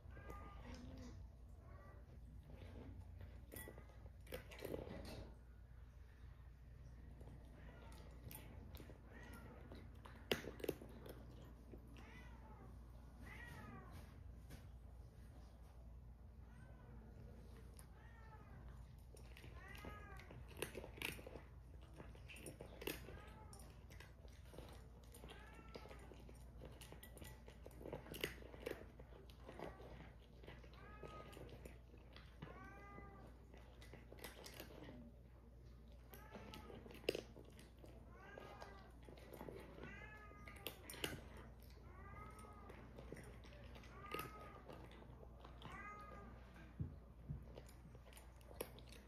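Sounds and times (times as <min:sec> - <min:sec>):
cat crunching kibble: 0:02.0 - 0:12.4, 0:17.1 - 0:49.0
cat meowing: 0:11.9 - 0:14.1, 0:38.1 - 0:46.6.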